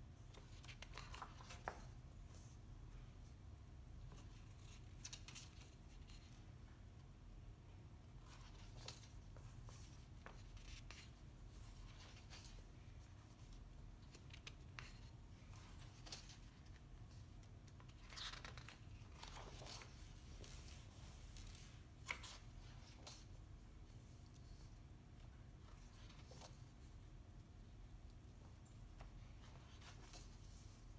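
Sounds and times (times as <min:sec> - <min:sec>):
low room hum: 0:00.0 - 0:30.9
book pages turning: 0:00.3 - 0:02.5, 0:08.2 - 0:23.4, 0:28.8 - 0:30.9
paper rustling: 0:00.3 - 0:02.6, 0:08.2 - 0:24.7, 0:28.5 - 0:30.9.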